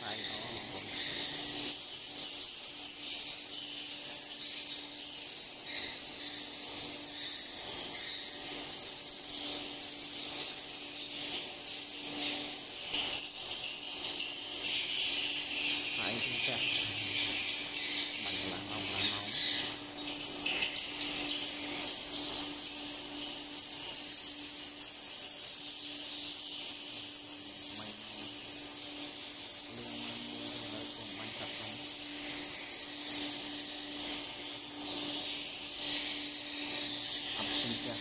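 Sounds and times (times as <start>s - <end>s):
mist humidifier humming and hissing: 8.4s - 38.0s.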